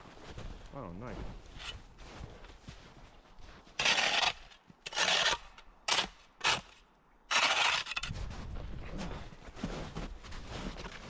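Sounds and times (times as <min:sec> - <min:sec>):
shovel scraping packed snow: 0:01.5 - 0:08.5.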